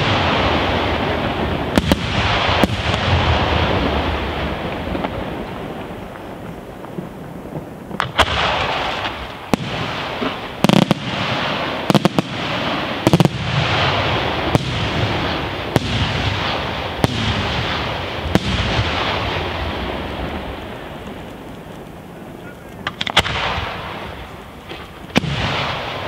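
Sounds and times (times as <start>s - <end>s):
crackling hiss of fireworks: 0.0s - 26.0s
fireworks bangs: 0.0s - 26.0s.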